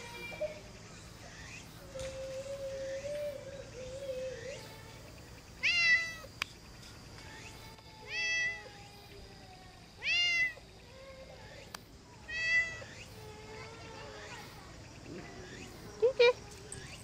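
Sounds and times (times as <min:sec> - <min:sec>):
cat meowing loudly: 0:05.6 - 0:06.3, 0:08.0 - 0:08.7, 0:10.0 - 0:10.6, 0:12.3 - 0:12.9.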